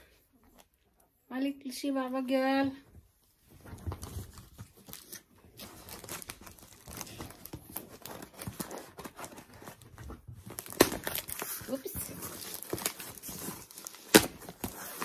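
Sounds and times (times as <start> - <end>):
packaging rustling and crackling: 3.8 - 15.0.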